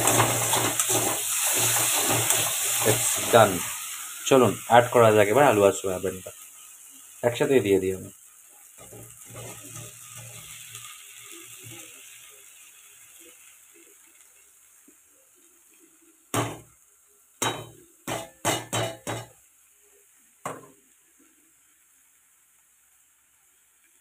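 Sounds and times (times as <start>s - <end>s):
food tumbling into a pan: 0.0s - 3.8s
utensils knocking against a pan: 17.4s - 19.4s.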